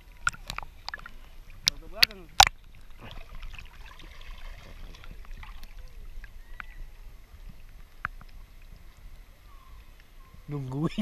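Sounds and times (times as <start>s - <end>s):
small splashes: 0.0s - 6.8s
seawater sloshing: 0.0s - 11.0s
faint clicks: 7.4s - 8.9s.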